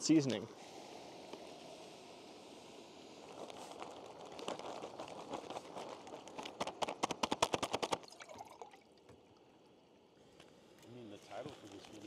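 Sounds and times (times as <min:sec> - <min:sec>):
water glugging as poured: 0:08.0 - 0:09.1.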